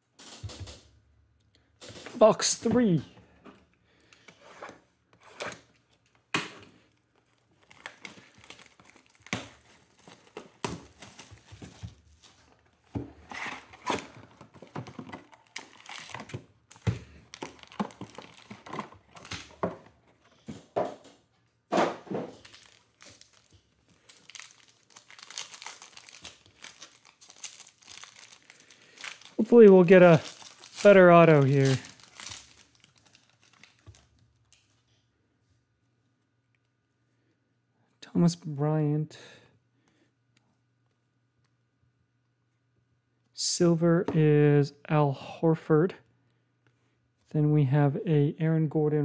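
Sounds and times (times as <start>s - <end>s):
foil wrappers crinkling: 6.9s - 19.9s, 22.2s - 34.8s
foil pack tearing open: 7.2s - 11.6s, 13.3s - 19.6s, 22.3s - 34.2s.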